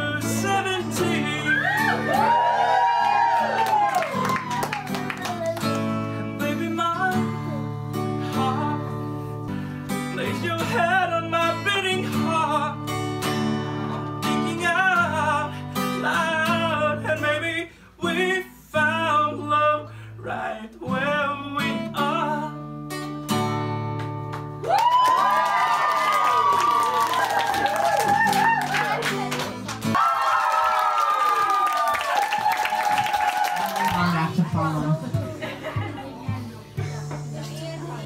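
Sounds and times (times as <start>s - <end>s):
man singing: 0.0s - 2.2s, 5.9s - 9.3s, 9.9s - 13.0s, 13.8s - 22.8s
acoustic guitar: 0.0s - 30.0s, 32.1s - 38.0s.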